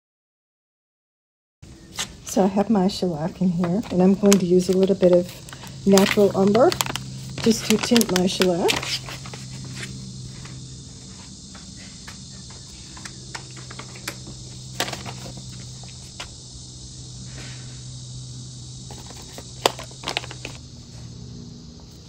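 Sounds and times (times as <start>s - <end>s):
high hiss: 1.7s - 22.0s
plastic bag crinkling: 3.8s - 9.9s, 18.9s - 20.6s.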